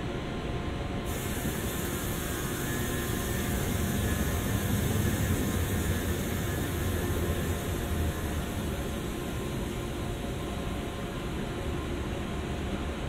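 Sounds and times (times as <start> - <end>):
traffic hiss: 1.1 - 9.8.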